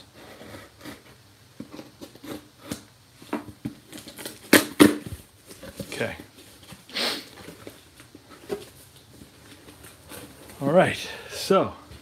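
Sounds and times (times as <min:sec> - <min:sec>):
cardboard box rustling: 0:03.5 - 0:10.6.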